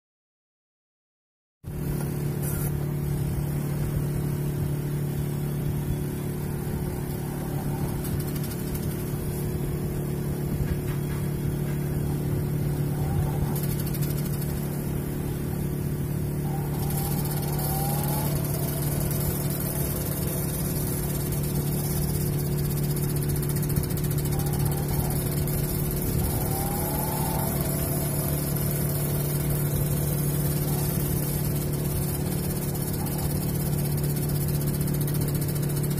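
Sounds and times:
washing machine motor humming: 1.7 - 35.9
faint short rising squeaks: 4.9 - 15.0, 15.8 - 34.5.

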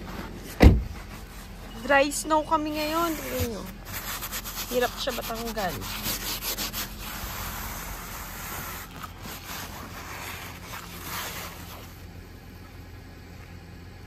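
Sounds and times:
car engine idling: 0.0 - 14.0
gloved hand brushing snow: 1.0 - 12.1.

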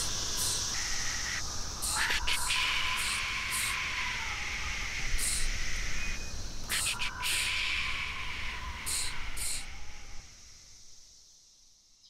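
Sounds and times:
people imitating insects: 0.0 - 5.9, 6.6 - 9.7.

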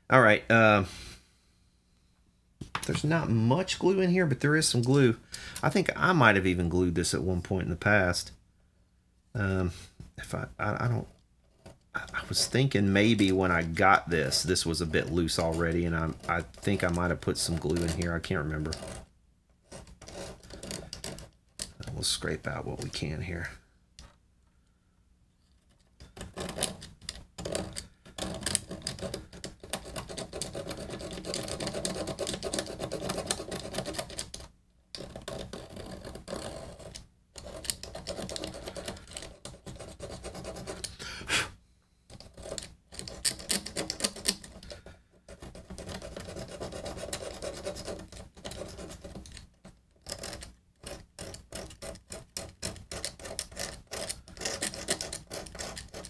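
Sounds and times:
hand tool scraping glue: 11.5 - 23.0, 25.6 - 41.1, 42.1 - 56.0.

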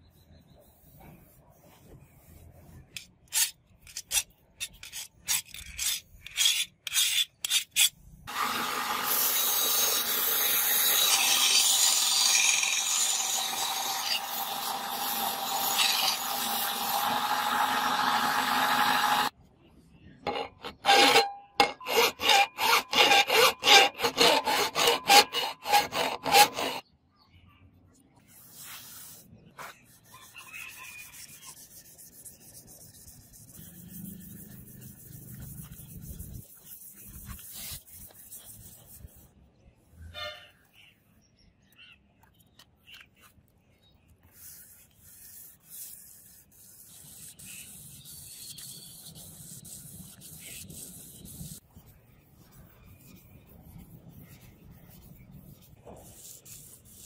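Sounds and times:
rubbing strokes on steel blade: 0.7 - 8.5, 9.1 - 19.3, 20.3 - 26.8, 28.4 - 39.2, 44.3 - 57.0
belt sander grinding blade: 8.3 - 19.3, 20.3 - 26.8.

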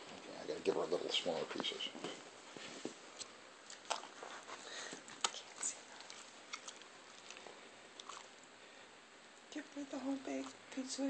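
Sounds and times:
dog chewing and smacking: 3.6 - 8.4.

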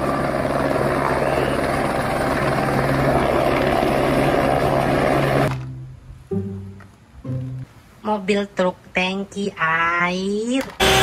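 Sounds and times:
helicopter hovering: 0.0 - 5.5.

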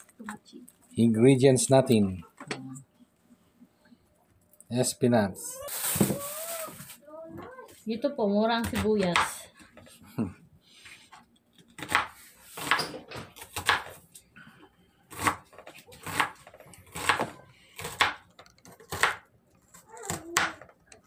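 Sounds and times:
knife slicing onion on cutting board: 11.8 - 14.0, 15.1 - 20.7.

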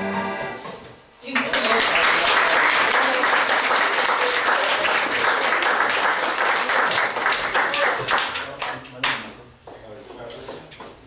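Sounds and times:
audience applauding: 1.3 - 9.2.

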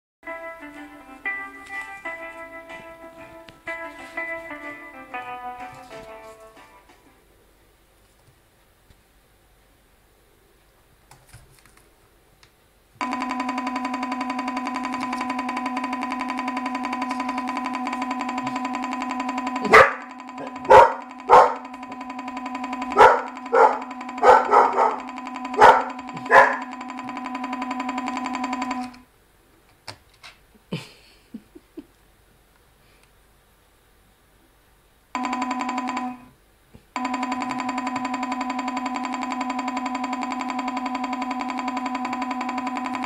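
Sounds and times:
dog barking: 19.7 - 21.6, 22.9 - 26.7.

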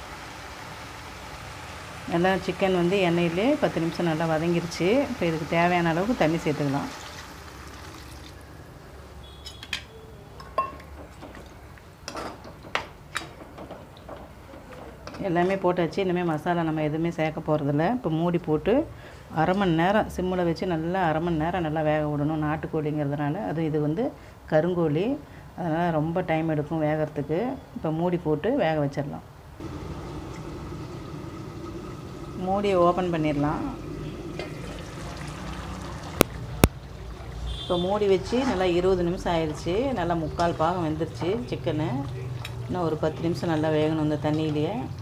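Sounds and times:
pot simmering on gas burner: 29.6 - 37.7.

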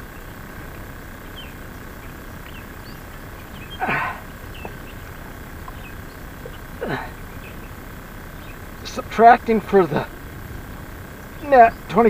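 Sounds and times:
bird chirps: 0.0 - 12.0
man grunting: 3.8 - 4.2, 6.8 - 7.2.

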